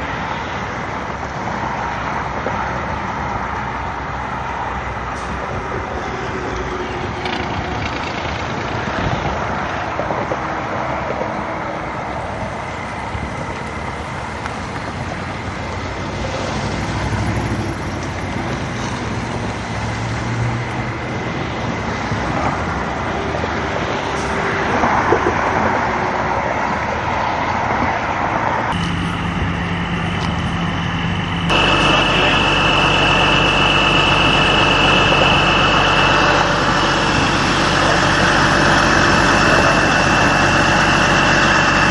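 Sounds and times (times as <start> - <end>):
truck idling: 0.0 - 27.1, 28.6 - 41.9
road and traffic noise: 0.0 - 41.9
truck running: 0.0 - 41.9
high whine: 28.6 - 41.9.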